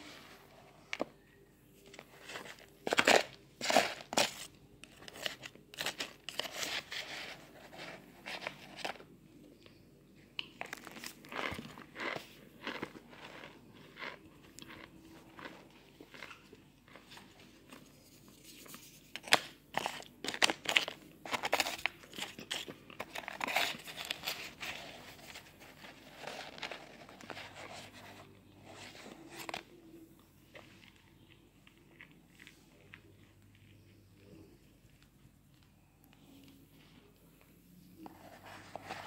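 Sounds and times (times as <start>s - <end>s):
powder chunks crunching: 1.8s - 6.9s, 10.5s - 17.2s, 19.2s - 27.4s.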